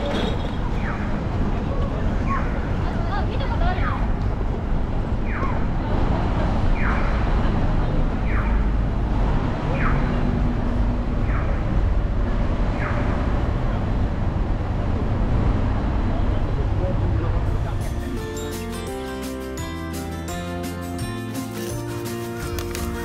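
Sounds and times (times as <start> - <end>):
city street traffic rumble: 0.0 - 23.0.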